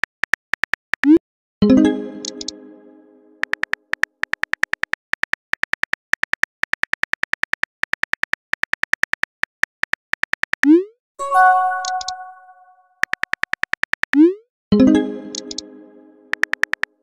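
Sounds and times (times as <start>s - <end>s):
phone keyboard clicks: 2.2s - 2.5s.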